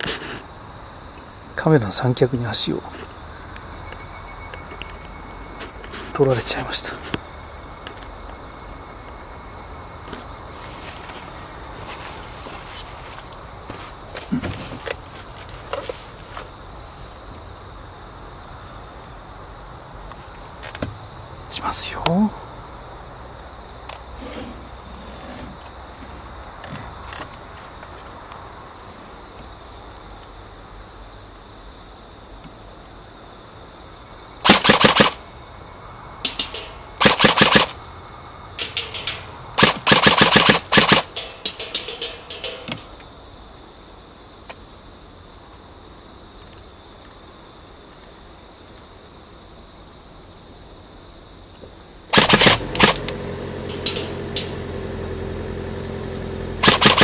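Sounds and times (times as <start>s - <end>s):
airsoft gun full-auto bursts: 34.4s - 35.2s, 36.3s - 37.8s, 38.6s - 42.6s, 52.1s - 53.0s, 56.6s - 57.0s.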